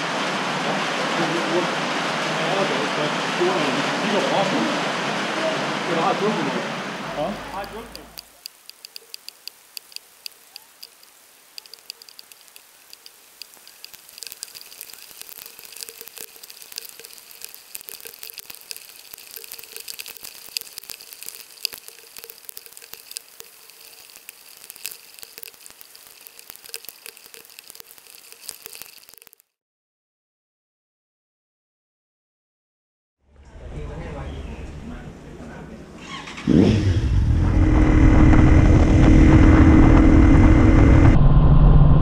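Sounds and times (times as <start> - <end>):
rain falling: 0.0 - 29.5
raindrops tapping on camera case: 7.6 - 29.4.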